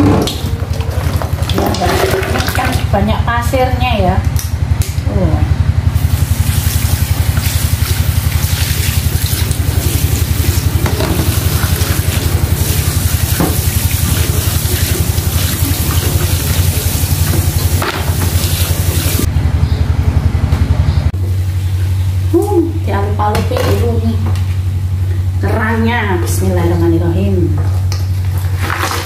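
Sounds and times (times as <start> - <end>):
fast-pulsing low hum: 0.0 - 23.1
tap water running into pan: 0.2 - 2.9, 6.0 - 19.3.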